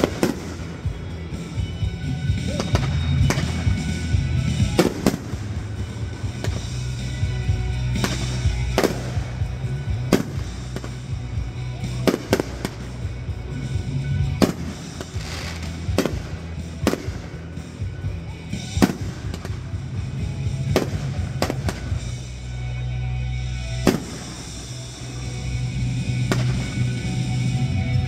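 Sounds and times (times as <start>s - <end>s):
fireworks bangs: 0.0s - 22.4s, 23.6s - 27.5s
fireworks crackling: 0.0s - 28.0s.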